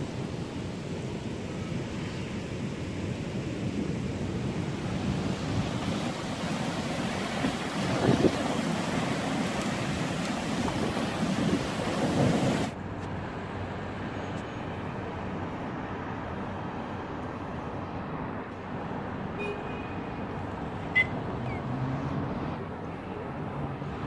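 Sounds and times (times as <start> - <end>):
thunderstorm rushing: 4.7 - 12.7.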